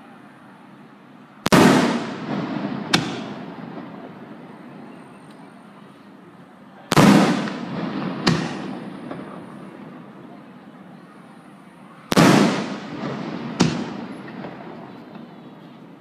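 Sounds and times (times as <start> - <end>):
firework bangs echoing: 1.4 - 4.7, 6.9 - 10.2, 12.1 - 15.8.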